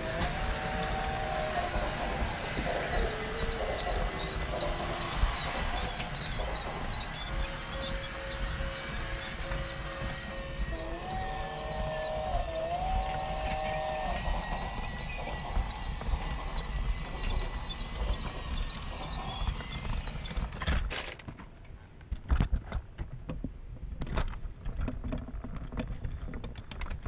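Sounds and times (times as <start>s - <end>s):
toy train motor whirring: 0.0s - 21.2s
knocks and clatter: 0.0s - 27.0s.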